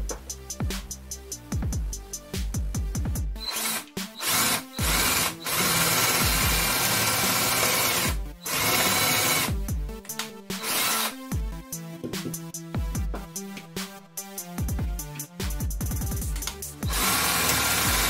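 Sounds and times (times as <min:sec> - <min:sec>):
power drill boring into chipboard: 0:03.4 - 0:09.6, 0:10.6 - 0:11.2, 0:16.8 - 0:18.0.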